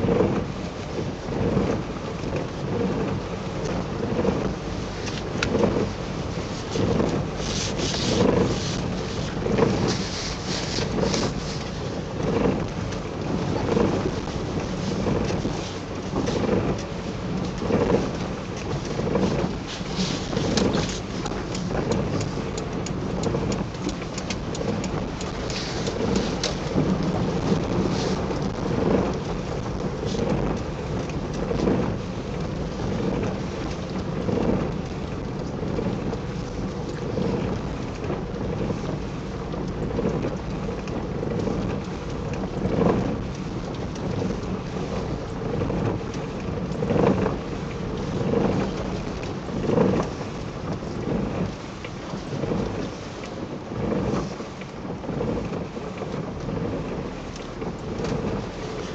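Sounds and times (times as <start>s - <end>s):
car road and engine rumble: 0.0s - 58.9s
rain suit crinkling: 6.2s - 12.6s, 17.4s - 30.7s.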